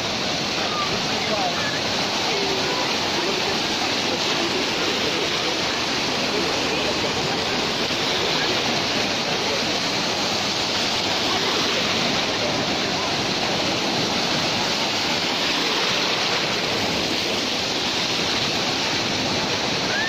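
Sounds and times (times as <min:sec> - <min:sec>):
small waves breaking: 0:00.0 - 0:20.0.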